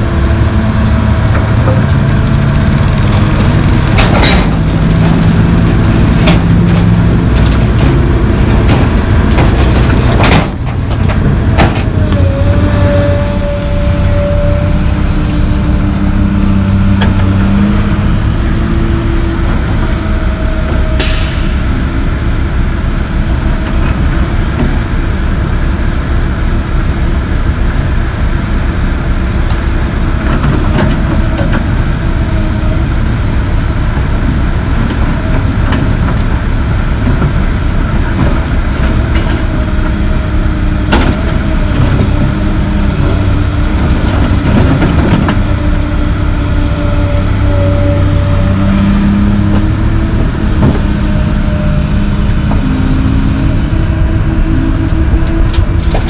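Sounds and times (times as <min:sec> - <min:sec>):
diesel engines running: 0:00.0 - 0:56.0.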